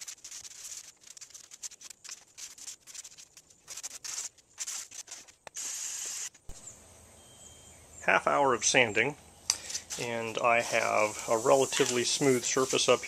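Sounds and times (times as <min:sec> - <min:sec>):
sanding a surface: 0:00.0 - 0:05.2, 0:10.5 - 0:13.0.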